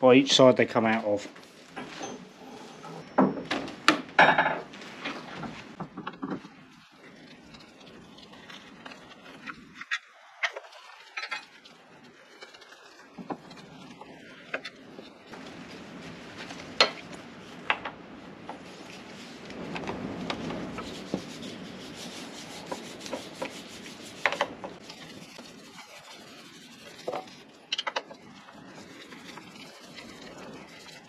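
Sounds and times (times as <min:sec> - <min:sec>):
hand tool rubbing and scraping: 0:01.4 - 0:03.2, 0:18.5 - 0:31.0.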